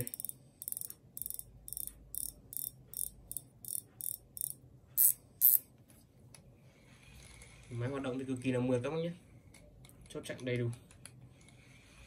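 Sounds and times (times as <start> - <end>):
fishing reel ticking: 0.0 - 5.6.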